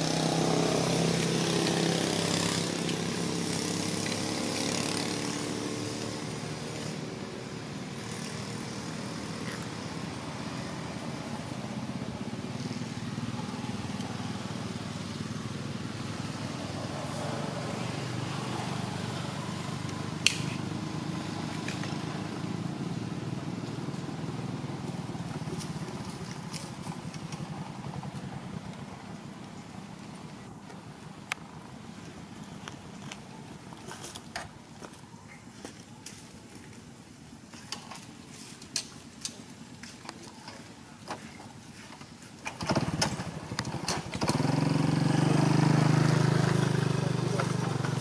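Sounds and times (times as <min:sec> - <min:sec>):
vehicle engine running: 0:00.0 - 0:32.8, 0:41.6 - 0:48.0
sharp click: 0:20.2 - 0:20.6.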